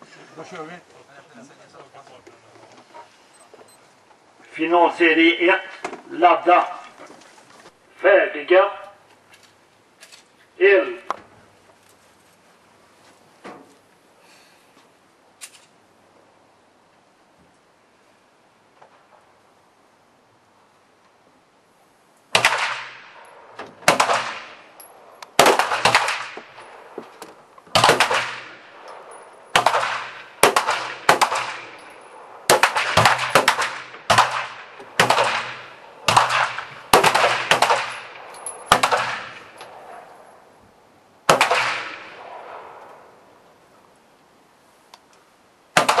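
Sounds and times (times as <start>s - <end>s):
pistol shots with ringing echo: 22.4s - 27.0s, 27.7s - 40.1s, 41.3s - 43.1s, 45.8s - 46.0s.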